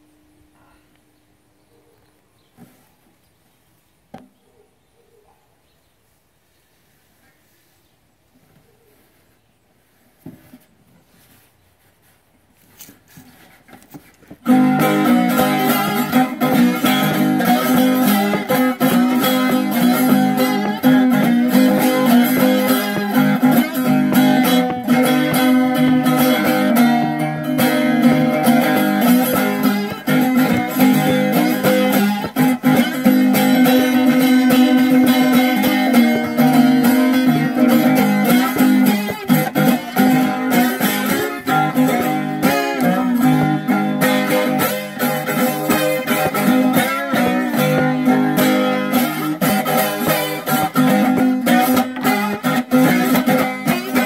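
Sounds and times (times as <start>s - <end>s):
slide guitar riff: 14.3s - 54.0s.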